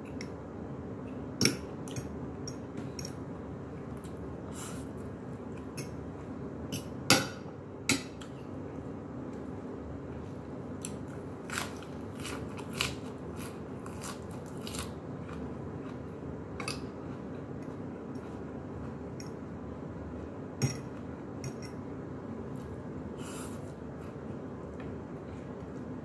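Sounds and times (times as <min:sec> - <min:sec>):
steady low hum: 0:00.0 - 0:26.0
person chewing food: 0:10.8 - 0:19.4.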